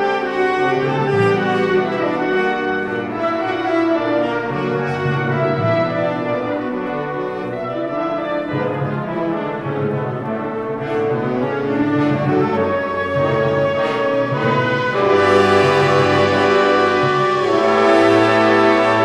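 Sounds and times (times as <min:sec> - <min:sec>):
orchestra playing: 0:00.0 - 0:19.0
brass playing sustained chords: 0:10.3 - 0:19.0.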